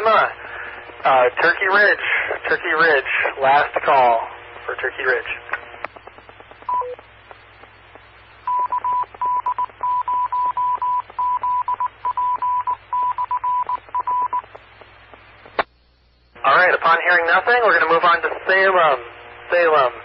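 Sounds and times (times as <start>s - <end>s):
radio hiss and hum: 0.0s - 20.0s
static clicks: 4.6s - 10.0s, 13.4s - 20.0s
morse code tone: 8.5s - 14.4s.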